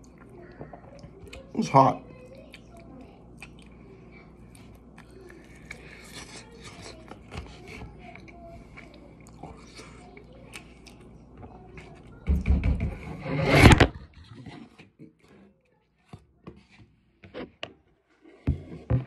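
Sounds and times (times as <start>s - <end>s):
person chewing: 2.3s - 11.2s.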